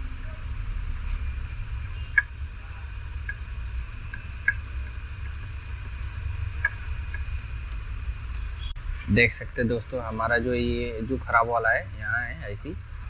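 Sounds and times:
steady low hum: 0.0s - 13.0s
metal tweezers ticking on circuit board: 3.2s - 5.5s, 6.5s - 7.4s.

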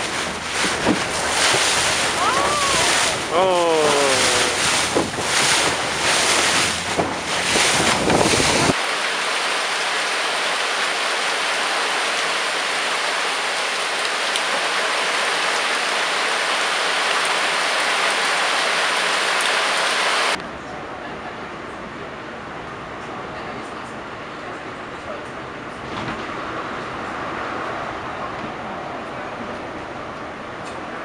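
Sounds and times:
heavy rain on water and deck: 0.0s - 20.4s
water rushing past boat bow: 0.0s - 20.4s
wind buffeting microphone: 3.9s - 8.8s.

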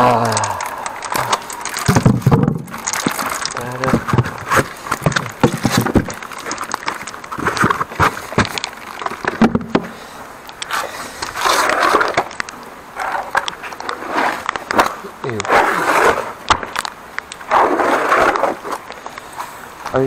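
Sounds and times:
insulation scraping and rustling: 0.0s - 20.0s
rubber mat rustling scrape: 10.7s - 12.3s, 13.0s - 16.4s, 17.5s - 18.8s.

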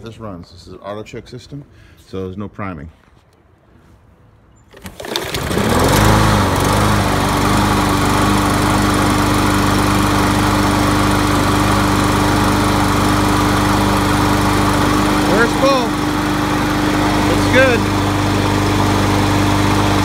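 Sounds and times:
lawn mower engine running: 4.7s - 20.0s.

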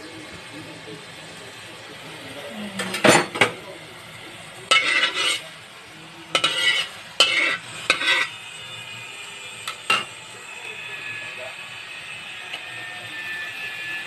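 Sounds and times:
metal ladle scraping a wok: 4.7s - 5.5s, 6.3s - 8.4s.

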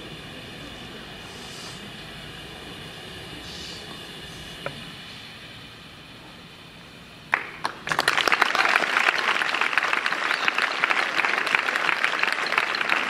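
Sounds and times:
crowd applauding: 7.3s - 13.0s.

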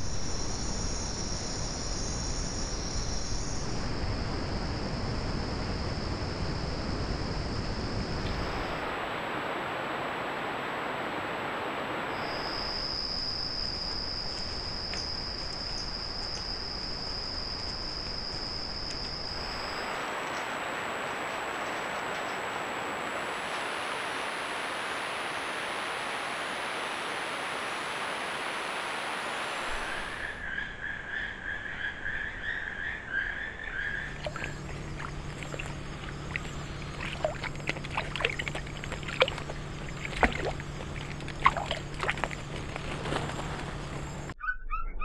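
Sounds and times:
low steady hum: 0.0s - 30.4s, 33.0s - 44.4s
insects hissing: 0.0s - 30.8s, 32.4s - 44.4s
animal splashing through water: 34.1s - 43.6s.

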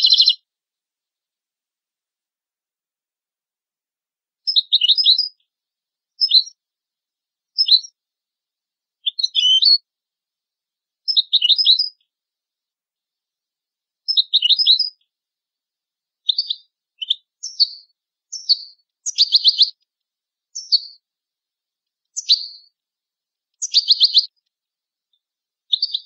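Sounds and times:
goldfinch singing: 0.0s - 0.4s, 4.4s - 5.4s, 6.2s - 6.6s, 7.5s - 8.0s, 9.0s - 9.8s, 11.0s - 12.1s, 14.1s - 15.1s, 16.2s - 19.9s, 20.5s - 21.0s, 22.1s - 22.8s, 23.6s - 24.5s, 25.7s - 26.0s.

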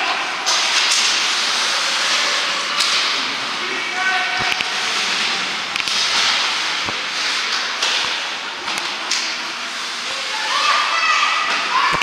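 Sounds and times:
hockey sticks clacking: 5.7s - 9.3s.

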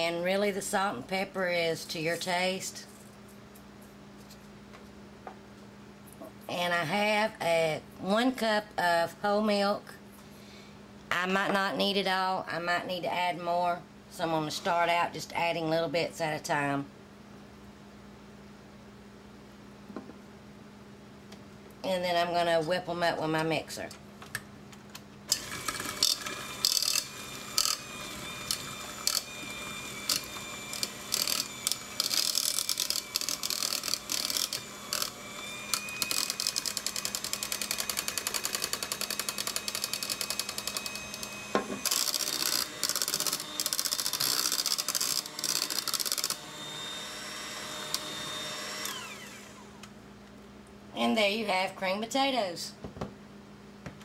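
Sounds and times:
electric hand mixer whining: 25.3s - 49.8s.

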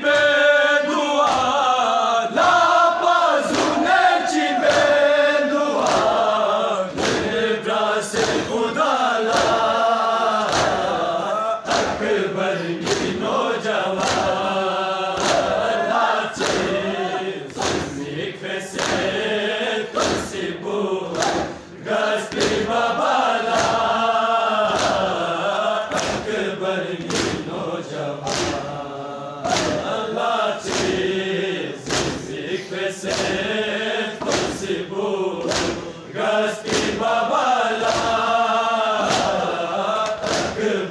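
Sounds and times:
crowd of men chanting: 0.0s - 40.9s
hands striking chests: 35.4s - 35.9s, 40.0s - 40.6s.

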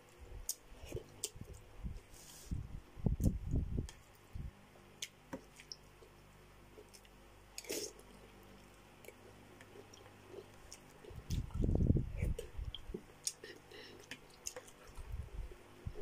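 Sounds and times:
wet mouth clicks and chewing: 6.8s - 15.1s
wet slurping mouthful: 7.6s - 8.2s.

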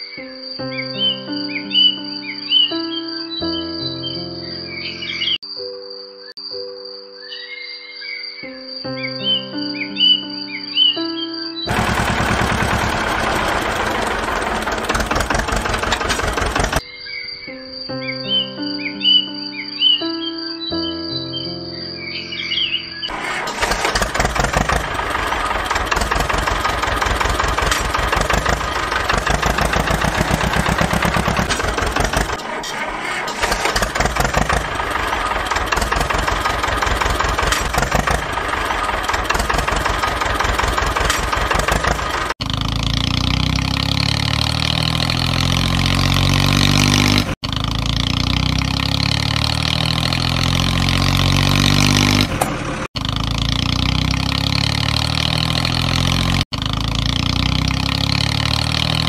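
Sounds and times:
motor engine chugging: 11.7s - 16.8s, 23.1s - 59.0s.

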